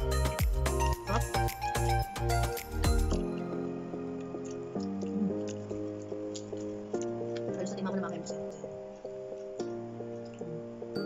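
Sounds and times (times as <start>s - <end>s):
beat-driven music: 0.0s - 11.0s
soft melody of held notes: 0.0s - 11.0s
wet chewing clicks: 2.6s - 10.9s.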